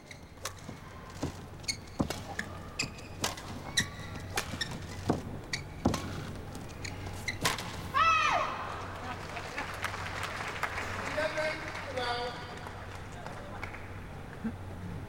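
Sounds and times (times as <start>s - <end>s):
racket striking shuttlecock: 0.1s - 8.0s.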